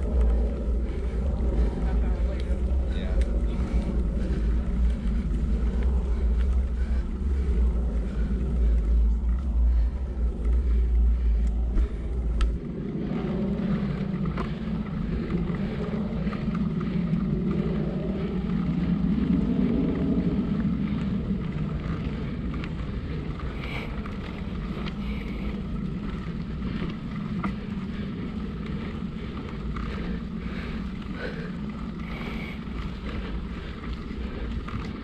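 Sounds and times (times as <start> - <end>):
bike tyres rolling on dirt: 0.0 - 35.0
wind rumbling on microphone: 0.0 - 35.0
light ticks: 2.2 - 4.0, 11.3 - 12.6.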